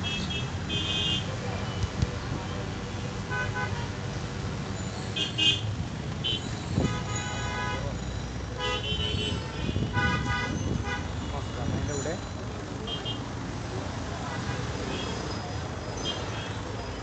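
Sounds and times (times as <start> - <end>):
car horns honking: 0.0 - 4.1, 5.1 - 12.0
low rumble of engines: 0.0 - 17.0.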